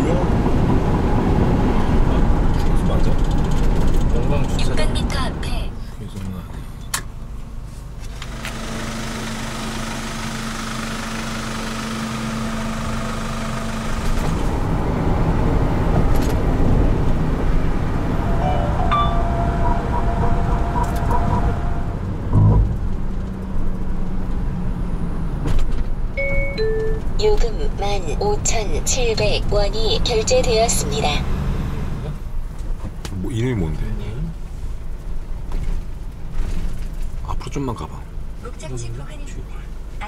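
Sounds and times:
car engine and tyre noise: 0.0s - 40.0s
short low thump: 22.2s - 23.1s.

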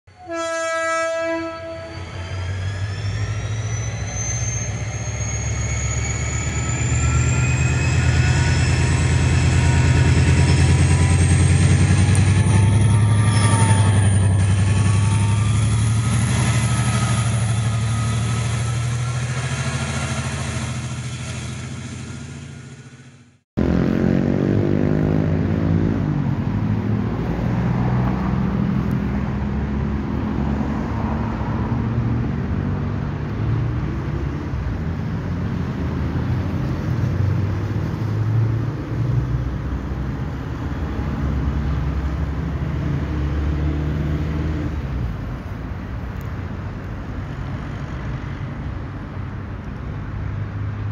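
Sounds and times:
traffic rumble: 2.5s - 50.9s
heavy engine running: 6.5s - 24.1s.

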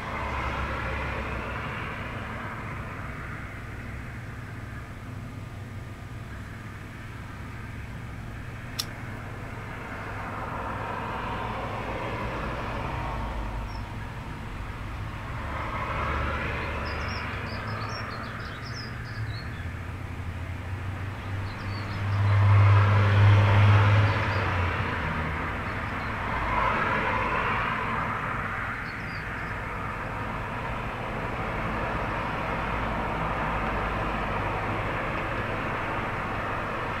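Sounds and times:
road traffic passing: 0.0s - 37.0s
small birds chirping: 13.7s - 14.0s, 16.6s - 19.8s, 21.2s - 22.4s, 28.8s - 29.9s.

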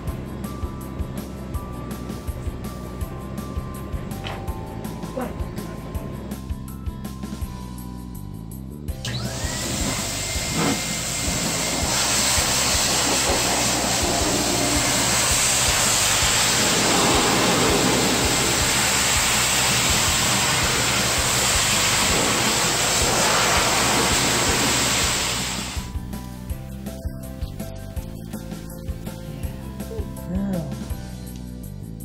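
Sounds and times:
grooming dryer blowing air: 9.0s - 26.0s.

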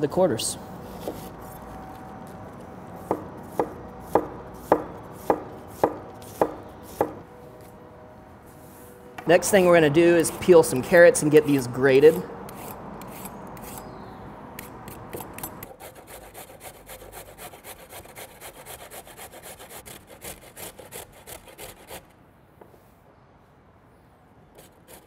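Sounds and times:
peeler scraping carrot: 12.0s - 14.0s.

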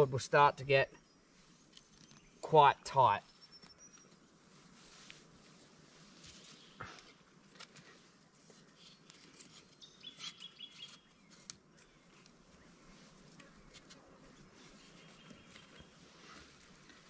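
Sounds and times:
dry twigs knocking and clicking: 6.3s - 7.9s, 8.5s - 12.4s
high bird chirps: 9.8s - 11.2s.

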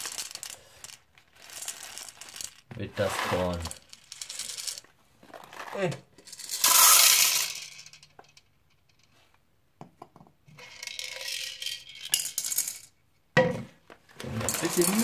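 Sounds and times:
popcorn kernels rattling in plastic: 0.0s - 7.8s, 14.2s - 15.0s.

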